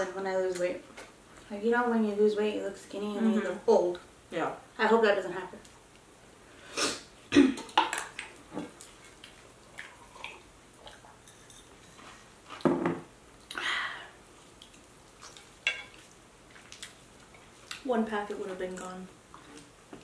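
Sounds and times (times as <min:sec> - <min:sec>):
wet chewing: 0:14.4 - 0:17.9.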